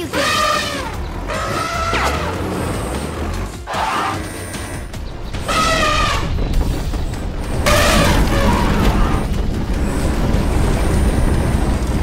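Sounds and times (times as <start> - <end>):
low rumble of boulder pushed: 4.9 - 12.0.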